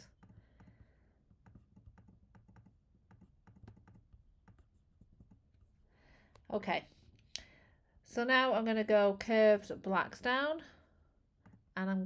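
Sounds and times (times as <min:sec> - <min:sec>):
keyboard and mouse clicking: 0:00.1 - 0:05.4.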